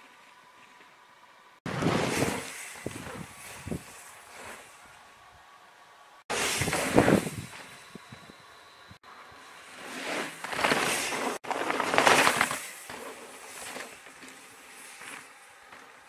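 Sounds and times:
bike tyres crunching and rattling: 9.6 - 16.0.

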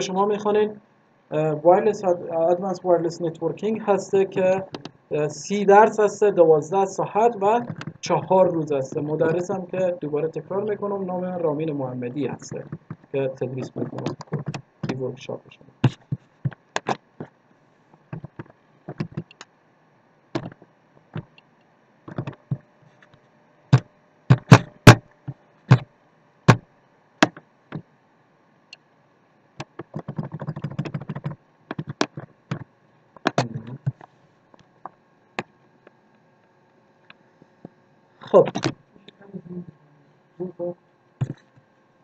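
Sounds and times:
mouse and keyboard clicks: 7.6 - 8.0, 12.6 - 15.0, 15.8 - 17.3, 18.1 - 19.5, 22.1 - 22.6, 29.6 - 34.1, 38.4 - 38.8.

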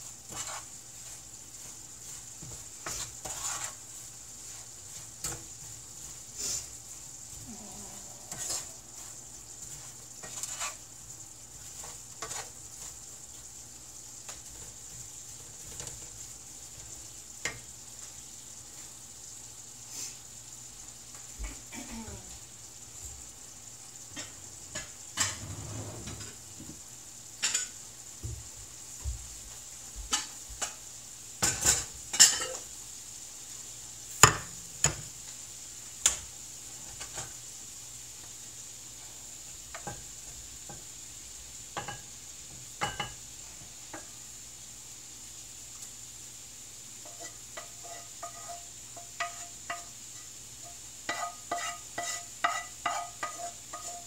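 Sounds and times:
utensil scraping frying pan: 0.0 - 19.0, 24.1 - 26.8, 27.4 - 27.8, 30.1 - 32.8, 36.0 - 37.4, 41.7 - 44.2, 46.9 - 54.0.

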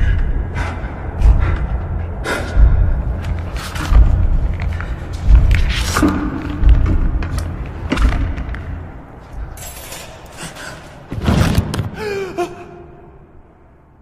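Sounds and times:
low rumble: 0.0 - 9.8
heavy thuds: 1.2 - 9.6.

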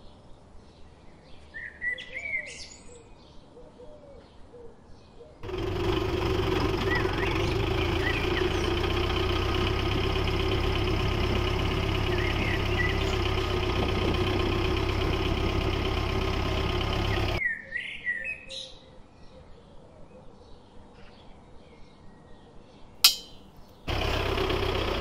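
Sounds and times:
small tractor engine running: 5.4 - 17.4, 23.9 - 25.0
birds chirping: 6.6 - 9.1, 11.8 - 17.6.

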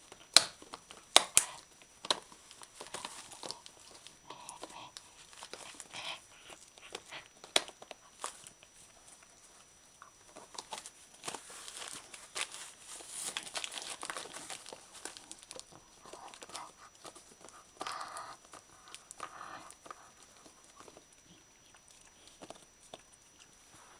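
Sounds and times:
dog tearing wrapping paper: 10.6 - 18.0.

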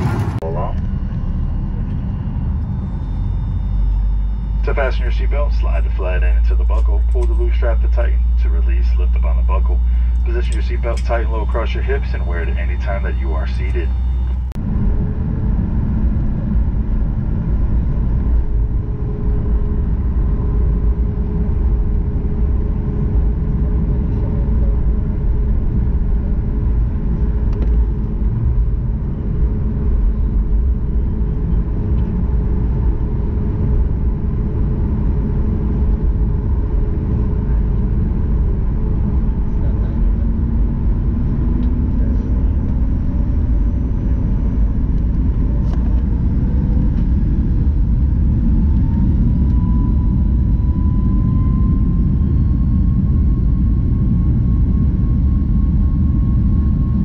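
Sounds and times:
jet engines rumbling: 0.0 - 57.0.

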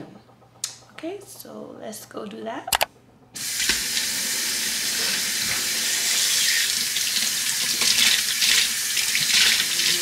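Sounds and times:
faucet running into sink: 3.4 - 10.0.

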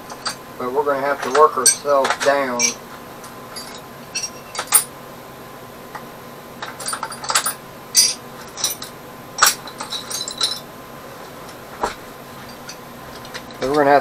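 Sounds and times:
metal tools clinking in a drawer: 0.0 - 0.4, 1.1 - 4.9, 6.6 - 10.7, 11.5 - 14.0.

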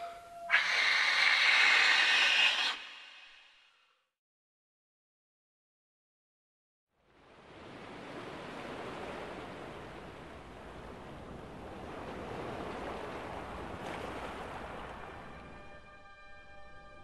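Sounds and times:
sea surf washing and breaking: 7.2 - 15.4.

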